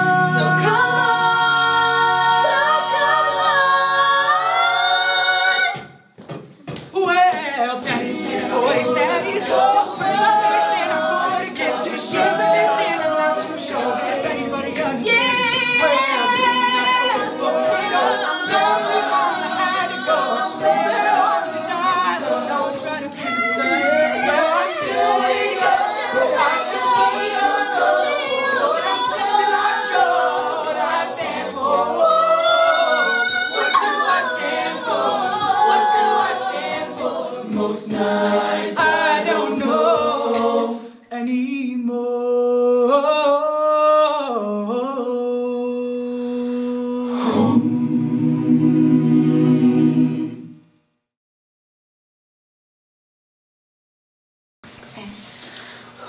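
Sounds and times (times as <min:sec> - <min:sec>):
a cappella group singing: 0:00.0 - 0:06.2, 0:07.6 - 0:50.7
percussive vocal beat: 0:05.5 - 0:41.0.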